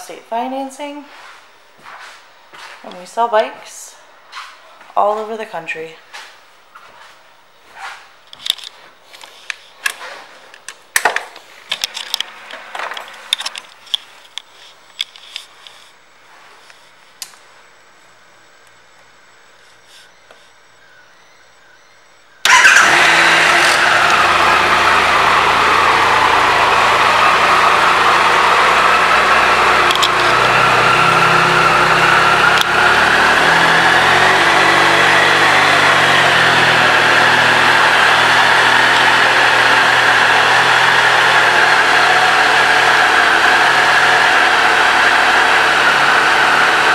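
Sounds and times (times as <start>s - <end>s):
motorcycle engine starting and idling: 22.4s - 46.9s.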